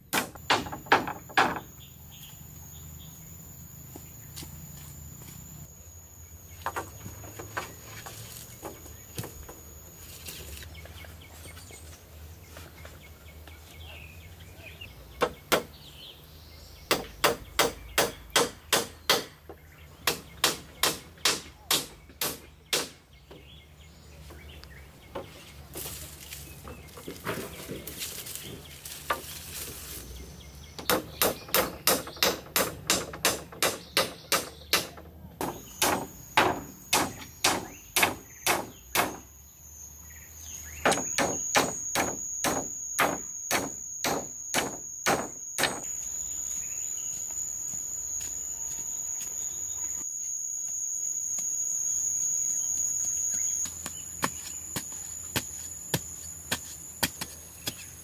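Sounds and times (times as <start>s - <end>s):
hand tool striking: 40.8s - 45.9s, 53.3s - 58.0s.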